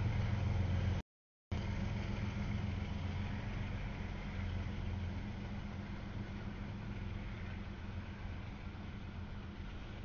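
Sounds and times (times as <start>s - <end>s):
freight train rumbling past: 0.0s - 1.0s, 1.6s - 10.0s.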